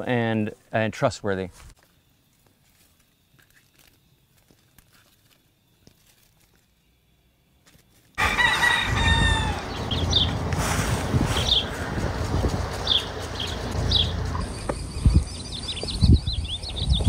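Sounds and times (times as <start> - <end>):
rooster crowing: 8.2 - 10.5
steady low rumble: 8.8 - 16.5.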